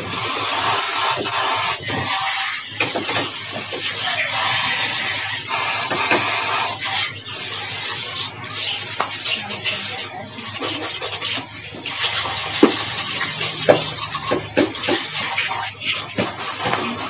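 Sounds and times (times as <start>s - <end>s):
water jet spraying and splashing: 0.0s - 17.0s.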